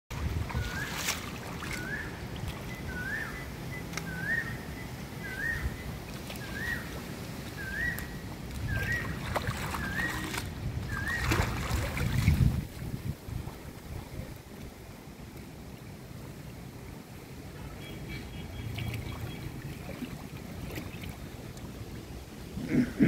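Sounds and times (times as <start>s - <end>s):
wind rumble on microphone: 0.1s - 17.6s.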